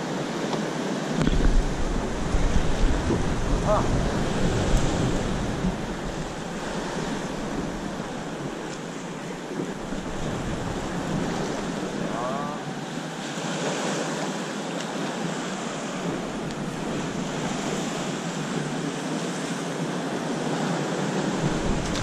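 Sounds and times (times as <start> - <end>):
waves breaking on rocks: 0.0 - 22.0
wind on microphone: 1.1 - 12.8, 15.2 - 22.0.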